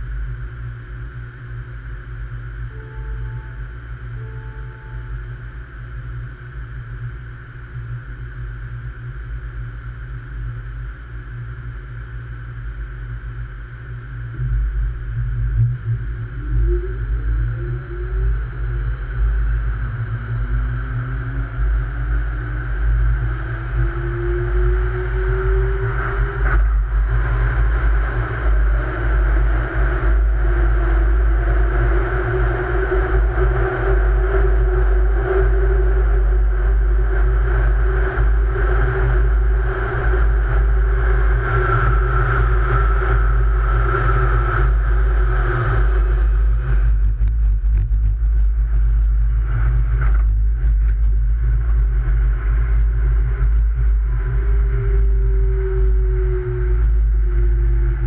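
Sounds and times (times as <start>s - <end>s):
low rumble: 0.0s - 58.0s
train motor whine: 2.6s - 5.5s.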